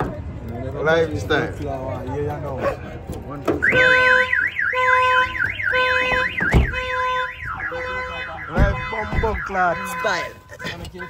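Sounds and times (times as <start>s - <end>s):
car alarm siren: 3.6s - 11.0s.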